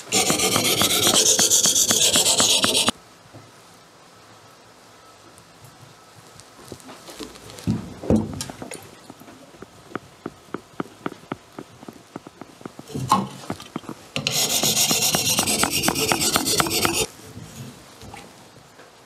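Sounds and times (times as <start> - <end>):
whetstone scraping sickle blade: 0.0 - 2.9, 14.2 - 17.1
knock: 0.2 - 2.9, 9.9 - 17.1.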